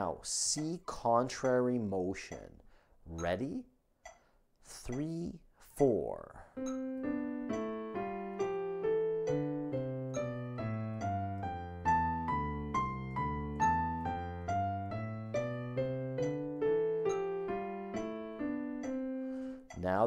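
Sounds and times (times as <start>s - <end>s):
digital piano playing a scale: 6.6s - 20.0s.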